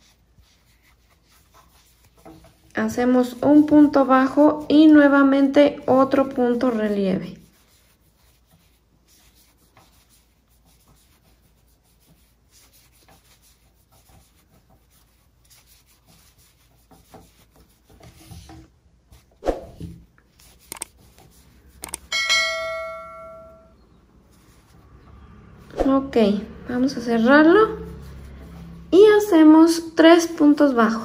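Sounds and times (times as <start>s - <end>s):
yarn rustling on crochet hook: 0.0s - 26.0s
bell-like chime: 22.1s - 23.8s.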